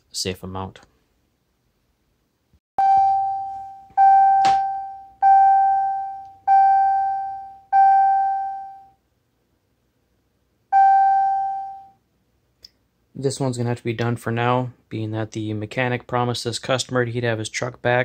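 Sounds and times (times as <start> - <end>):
bell-like warning chime: 2.8 - 9.0, 10.8 - 12.0.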